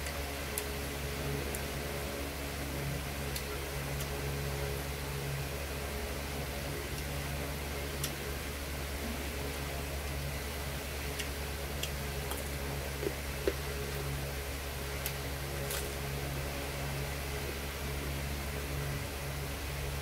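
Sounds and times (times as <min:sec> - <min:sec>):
low electric hum: 0:00.0 - 0:20.0
chewing raw carrot: 0:11.0 - 0:14.3.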